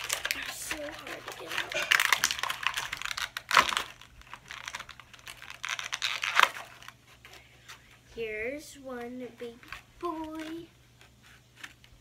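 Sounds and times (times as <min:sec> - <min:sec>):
plastic snapping: 0:00.0 - 0:07.0
plastic packaging crinkling: 0:00.0 - 0:07.8, 0:09.3 - 0:12.0.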